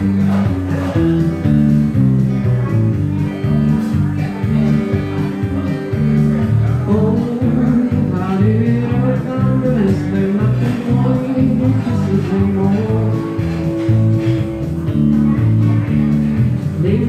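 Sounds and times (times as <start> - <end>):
bass notes: 0.0 - 17.0
strummed acoustic guitar: 0.0 - 17.0
man singing: 3.5 - 14.2, 16.6 - 17.0.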